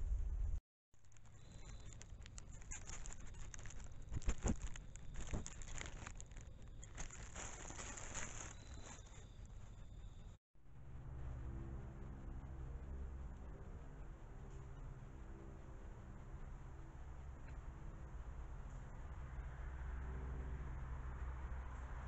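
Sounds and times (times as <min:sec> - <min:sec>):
leaves and twigs rustling: 0:01.0 - 0:09.8
twigs snapping: 0:01.1 - 0:08.8.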